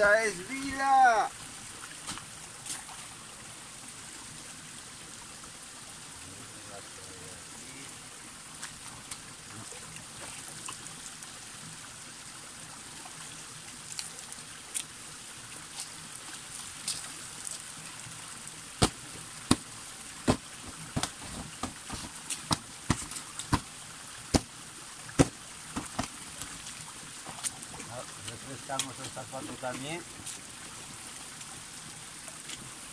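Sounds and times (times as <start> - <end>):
water trickling down rock: 13.0 - 32.9
water splashed by hand: 18.8 - 27.9.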